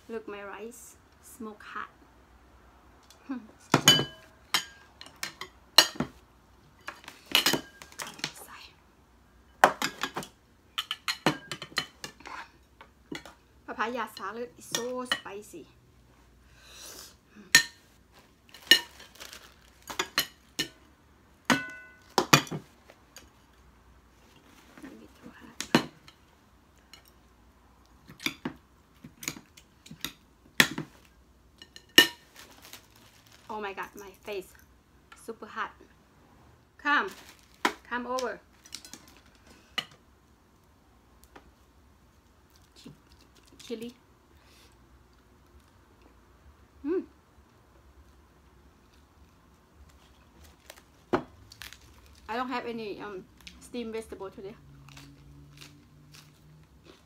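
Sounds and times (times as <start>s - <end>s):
metal spoon clinking on plates: 9.7s - 12.2s.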